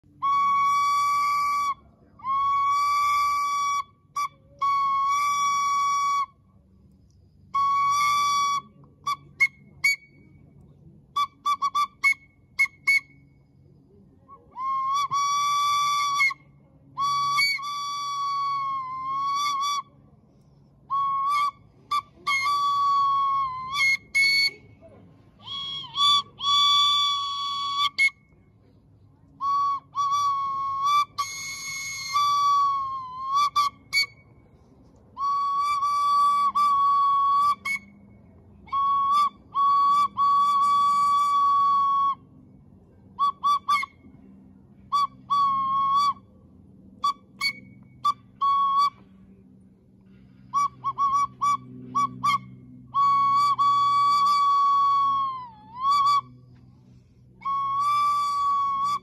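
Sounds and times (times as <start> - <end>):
toy train whistle toots: 29.4 - 34.1.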